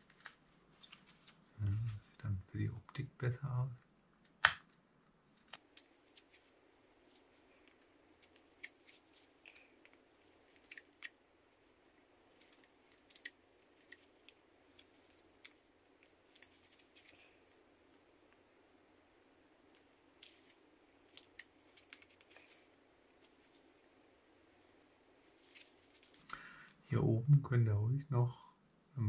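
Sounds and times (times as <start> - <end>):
knife shaving wood: 5.5 - 26.3.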